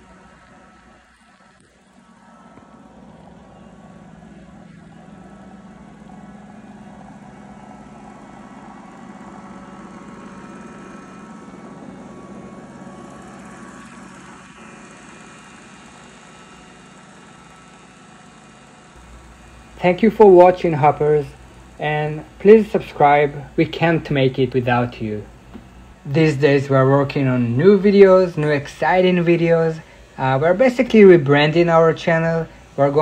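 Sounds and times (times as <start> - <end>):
robot vacuum running on carpet: 0.0 - 23.8.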